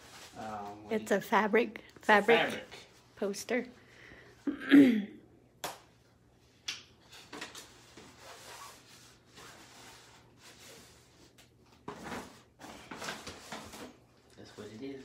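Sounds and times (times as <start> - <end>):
paper and fabric rustling: 0.0 - 3.6, 7.0 - 15.0.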